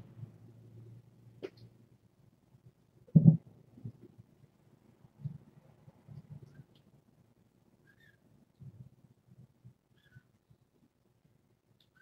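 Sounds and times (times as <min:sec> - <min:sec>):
faint high chirp: 0:07.8 - 0:08.2, 0:09.9 - 0:10.3.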